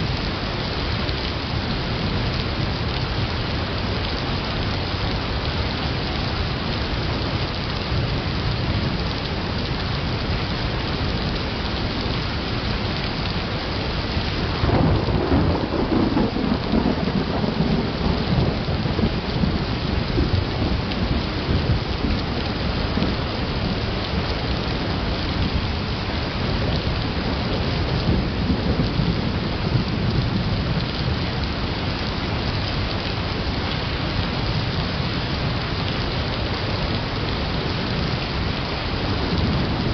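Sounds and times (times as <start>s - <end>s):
steady rain: 0.0s - 39.9s
thunder rumbling: 14.2s - 32.3s, 36.5s - 39.9s.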